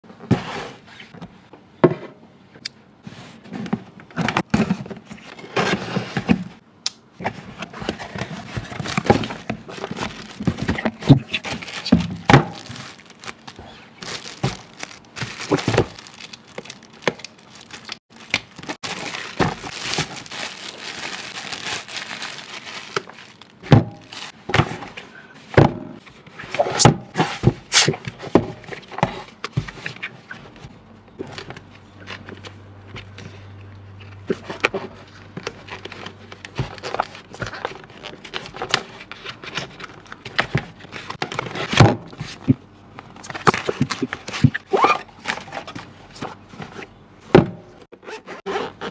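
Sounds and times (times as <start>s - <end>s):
packaging crinkling and tearing: 8.6s - 24.4s.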